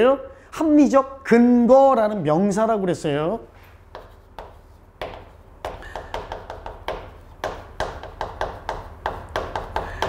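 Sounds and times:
taps of writing on hard surface: 0:03.9 - 0:10.0.

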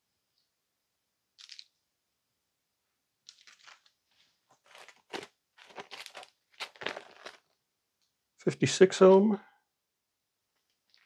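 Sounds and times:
plastic bag crinkling: 0:03.4 - 0:03.9, 0:04.6 - 0:07.5.

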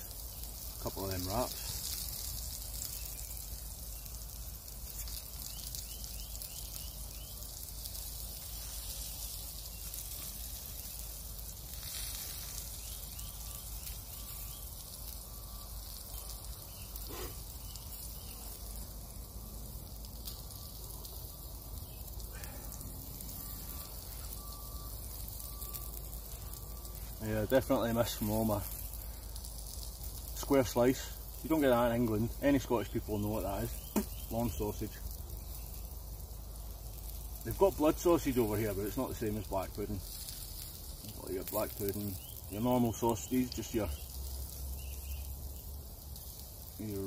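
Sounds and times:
sausages sizzling in a frying pan: 0:00.0 - 0:47.0
faint fat pops: 0:33.9 - 0:34.3.

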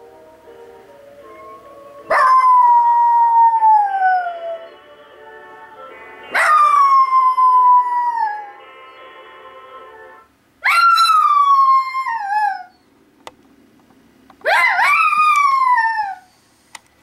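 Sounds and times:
commercial music: 0:00.0 - 0:02.6, 0:04.3 - 0:07.4, 0:08.4 - 0:10.4
small dog howling: 0:02.1 - 0:04.7, 0:06.4 - 0:08.6, 0:10.6 - 0:12.8, 0:14.5 - 0:16.3.

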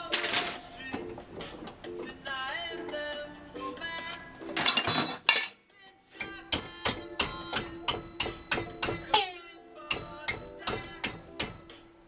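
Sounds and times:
hammer striking metal: 0:06.2 - 0:11.9.

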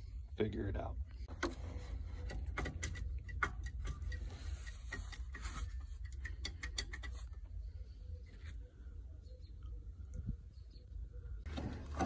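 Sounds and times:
pulley clicking and knocking: 0:01.3 - 0:07.4.

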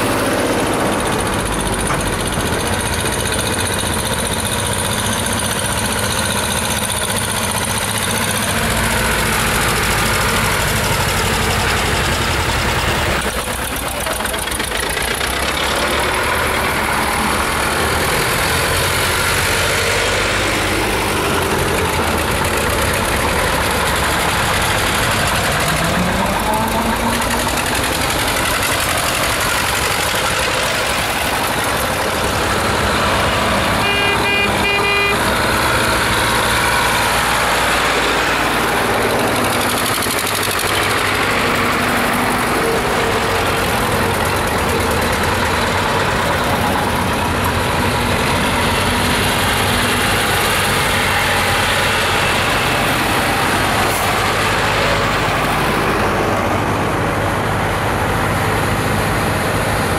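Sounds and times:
tractor engines running: 0:00.0 - 0:59.9
vehicle horn tooting: 0:33.7 - 0:35.4.

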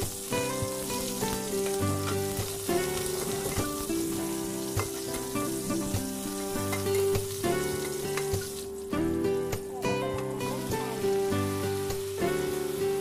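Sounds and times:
background music: 0:00.0 - 0:13.0
food sizzling in oil: 0:00.0 - 0:13.0
spatula scraping and tapping pan: 0:00.4 - 0:08.7.

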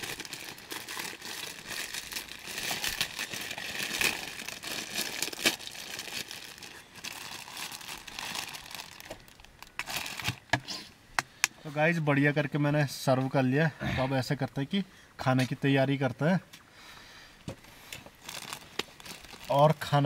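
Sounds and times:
packaging crinkling and rustling: 0:00.0 - 0:10.6, 0:17.9 - 0:20.0.

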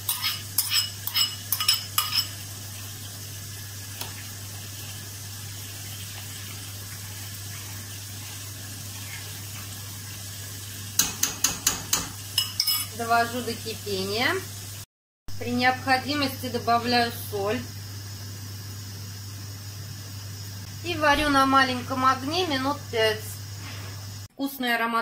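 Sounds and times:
spoon clinking against pot: 0:00.0 - 0:02.4, 0:11.0 - 0:13.0
metal spoon clinking against bowl: 0:00.1 - 0:02.3, 0:11.0 - 0:13.0.

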